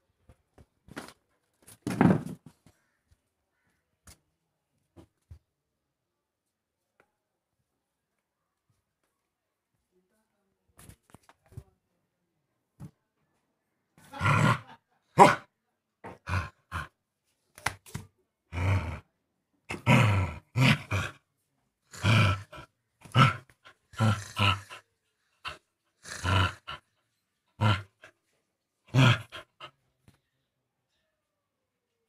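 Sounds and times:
dog play growling: 19.7 - 21.2, 21.9 - 24.8, 25.4 - 26.9, 27.6 - 28.1, 28.9 - 29.7.

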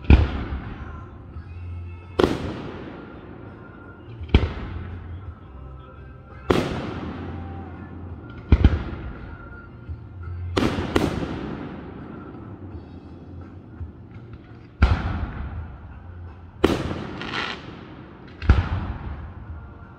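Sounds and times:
firework shells booming: 10.6 - 12.9, 14.1 - 15.8, 16.6 - 19.4.

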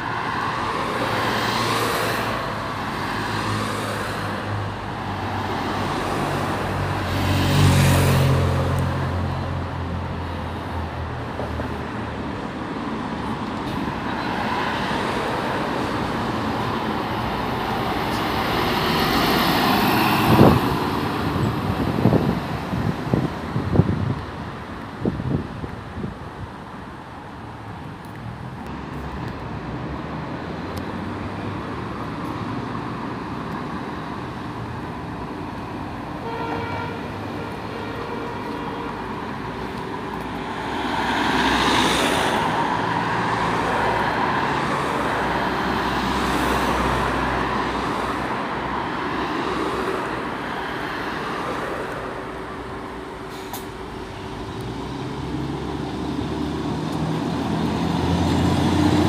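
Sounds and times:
road traffic: 0.0 - 59.0
horn toot: 36.2 - 39.0
bus air brake hiss: 53.2 - 53.8.

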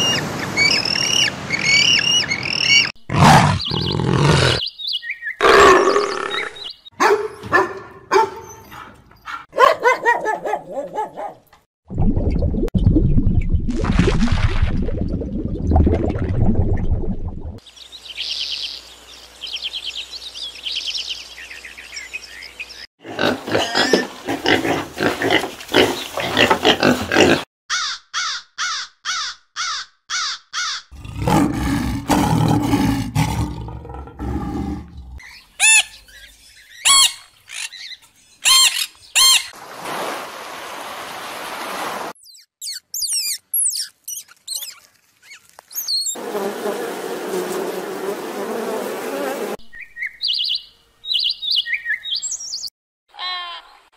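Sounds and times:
wet watery sound: 11.9 - 17.6
crow caws: 27.7 - 30.9
squirrel high thin chirps: 42.3 - 46.2.

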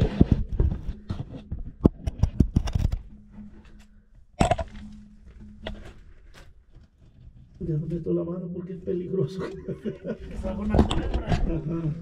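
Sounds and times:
camera handling knocks and scrapes: 0.1 - 3.3.

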